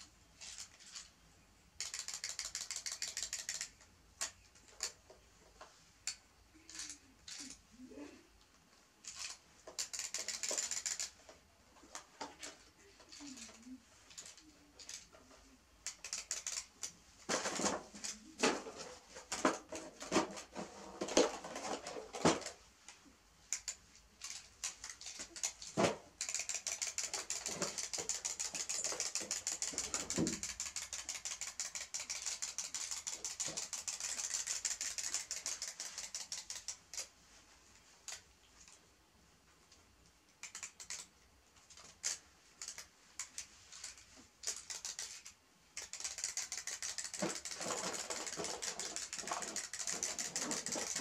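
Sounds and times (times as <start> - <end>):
clockwork toy rapid clicking: 1.8 - 5.0, 9.0 - 11.2, 13.1 - 15.1, 15.8 - 17.0, 23.5 - 37.1, 40.4 - 41.1, 41.7 - 51.0
scattered clicks: 1.8 - 5.0, 8.4 - 17.0, 22.4 - 37.1, 39.7 - 51.0.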